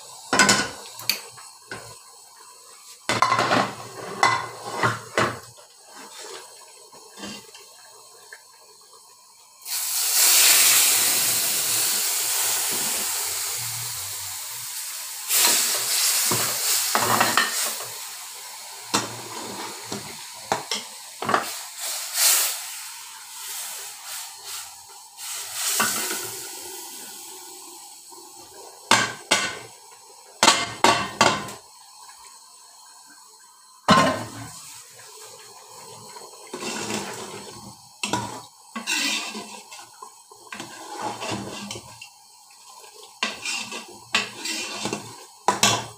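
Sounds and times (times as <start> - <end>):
loud sizzling hiss: 0.0 - 45.9
metal spoon scraping pot: 38.8 - 39.7, 43.2 - 45.0.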